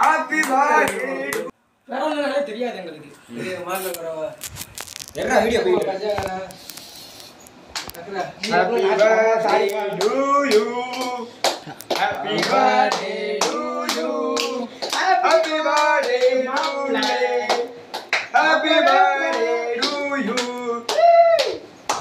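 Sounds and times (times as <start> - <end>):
young men singing together: 0.0 - 1.5, 8.4 - 20.9
hand claps: 9.4 - 22.0.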